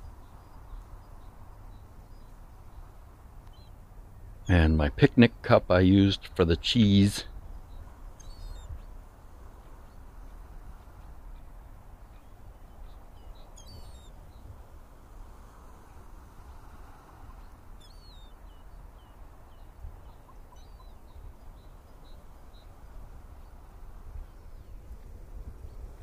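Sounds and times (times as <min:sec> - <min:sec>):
wind: 0:00.0 - 0:26.0
high thin bird chirps: 0:08.2 - 0:08.9.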